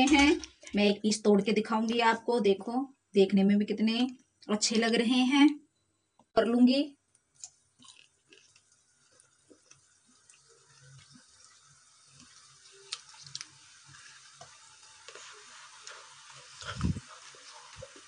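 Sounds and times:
oil bubbling and hissing: 7.3 - 18.0.

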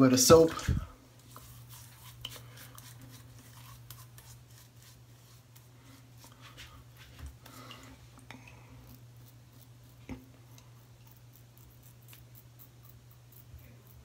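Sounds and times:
steady low hum: 0.0 - 14.0
fingertips rubbing lather into whiskers: 1.2 - 6.3, 8.8 - 14.0.

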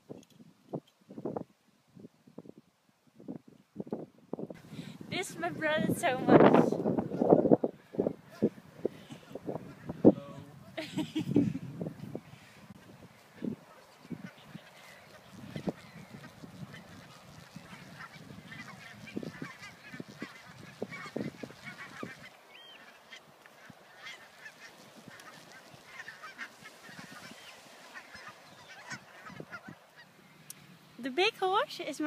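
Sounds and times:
geese honking: 13.2 - 30.4.

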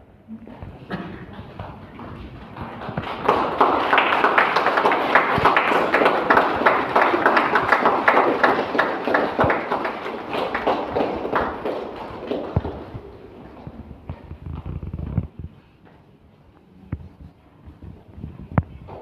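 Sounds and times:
crowd applauding: 1.4 - 13.2.

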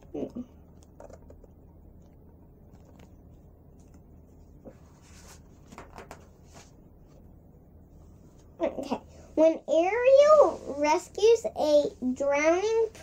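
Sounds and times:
book pages turning: 2.7 - 6.8.

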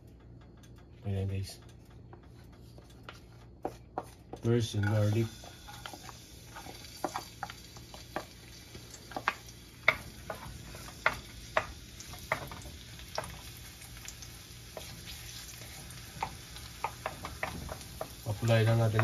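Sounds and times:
spatula scraping dish: 3.1 - 7.3
garlic sizzling in oil: 4.7 - 19.0.

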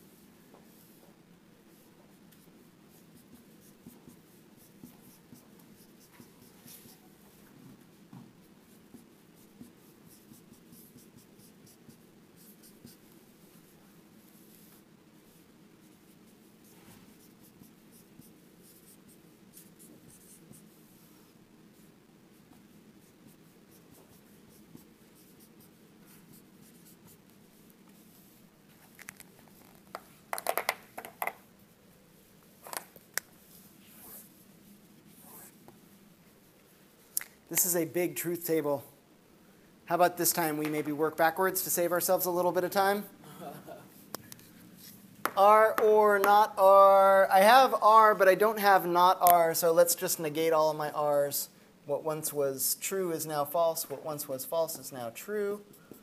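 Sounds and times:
low room hum: 0.0 - 56.0
marker writing on a whiteboard: 0.1 - 1.1, 1.7 - 31.5, 32.6 - 35.8, 44.4 - 47.1.

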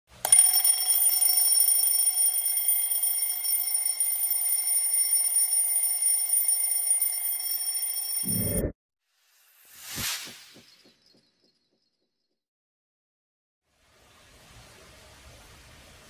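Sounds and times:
alarm clock bells ringing: 0.2 - 8.4.

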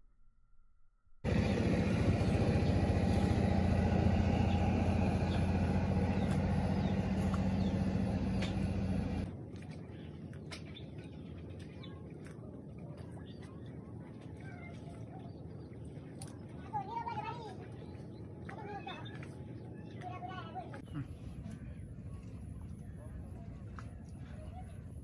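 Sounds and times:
loud motor hum: 1.2 - 9.3.

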